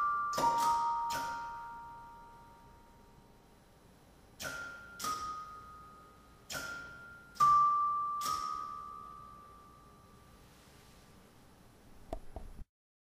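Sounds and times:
bell-like chimes struck: 0:00.0 - 0:03.1, 0:04.4 - 0:10.3.

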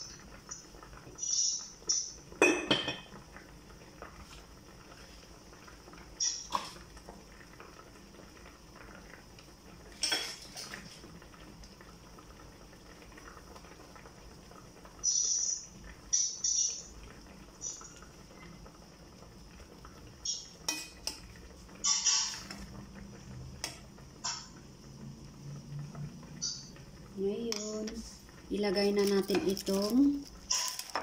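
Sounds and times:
pot boiling: 0:00.0 - 0:31.0
metal spoon clinking on pots: 0:20.7 - 0:21.2, 0:29.0 - 0:31.0.

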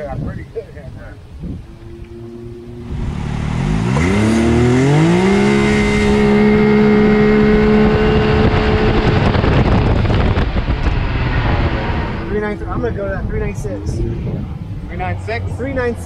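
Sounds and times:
wind noise: 0:00.0 - 0:16.0
engine at full throttle: 0:01.7 - 0:14.2.

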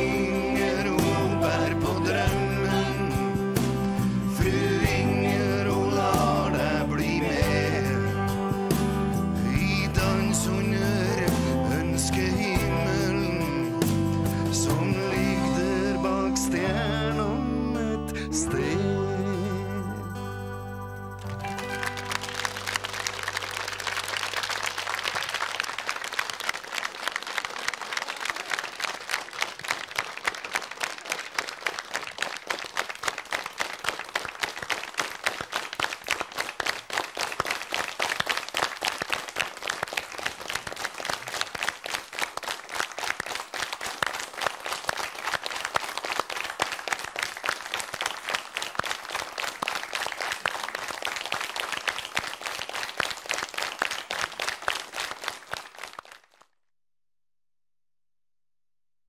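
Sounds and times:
audience applauding: 0:21.2 - 0:56.6.

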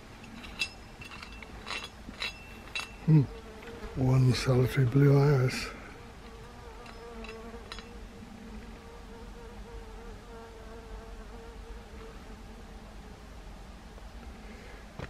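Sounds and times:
insect buzzing: 0:02.5 - 0:13.1.

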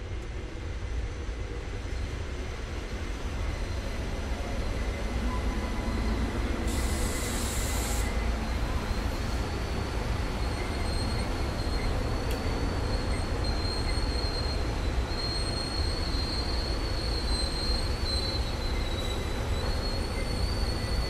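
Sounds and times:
train rumbling by: 0:00.0 - 0:21.0
high wheel squeal: 0:10.4 - 0:21.0.

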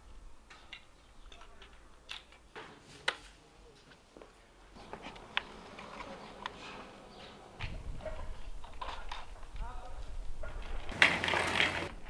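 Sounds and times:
hard plastic parts clicking: 0:00.5 - 0:02.5.

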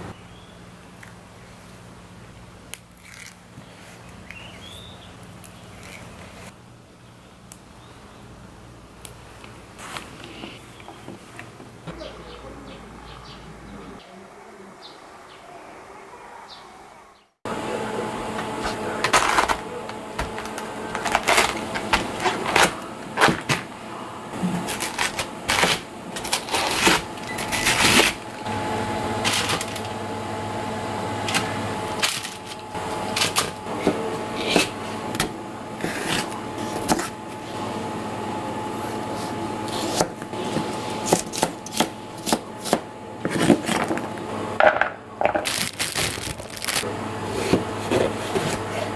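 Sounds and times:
faint bird chirps: 0:04.2 - 0:05.7
steady hum: 0:16.8 - 0:48.9.

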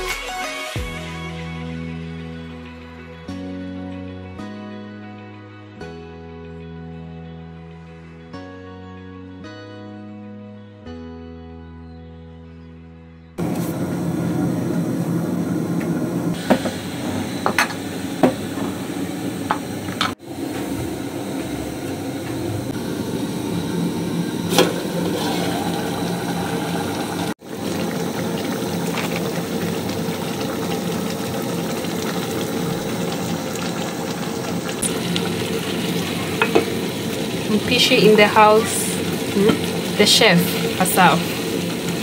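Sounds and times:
stew bubbling in a pot: 0:16.3 - 0:42.0.

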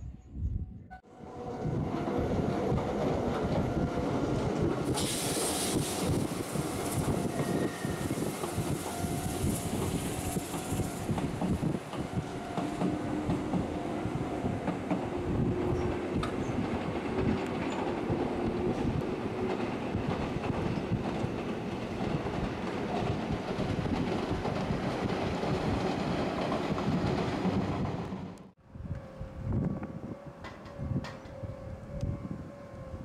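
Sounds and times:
electric train wheels rumbling: 0:01.1 - 0:33.0.

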